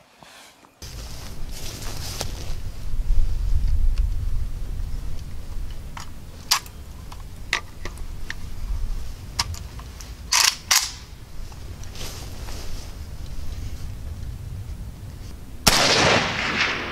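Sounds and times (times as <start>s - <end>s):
gun metal clicks and clacks: 9.4s - 11.1s.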